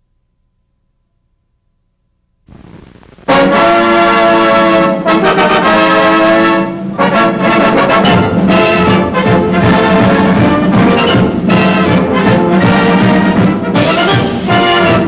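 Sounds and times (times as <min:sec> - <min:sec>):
faint hiss: 0:02.5 - 0:03.8
orchestral music led by brass: 0:03.3 - 0:15.0.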